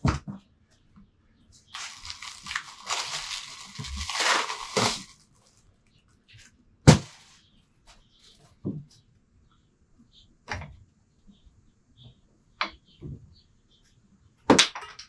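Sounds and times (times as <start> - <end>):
plastic wrap crinkling: 1.8 - 5.6, 7.0 - 7.4.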